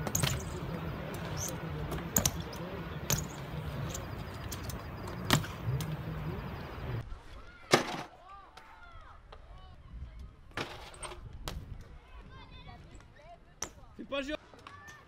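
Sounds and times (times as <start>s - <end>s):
bike landing clacks on concrete: 0.0s - 5.9s
bike tyres rolling on concrete: 0.0s - 7.0s.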